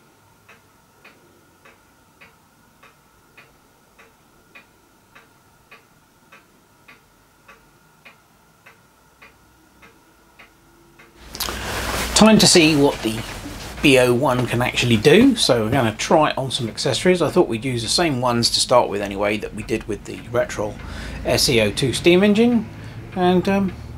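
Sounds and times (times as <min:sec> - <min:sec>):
faint steady hum: 0:00.0 - 0:23.9
faint even ticking: 0:00.4 - 0:23.9.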